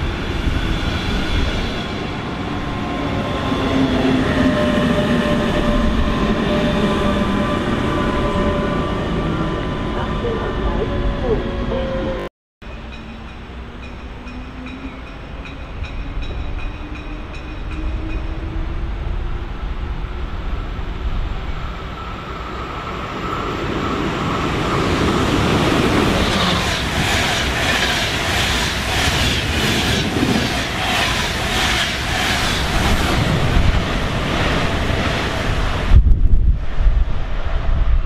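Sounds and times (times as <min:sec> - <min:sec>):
train passing at speed: 0:00.0 - 0:38.0
wind buffeting microphone: 0:23.6 - 0:38.0.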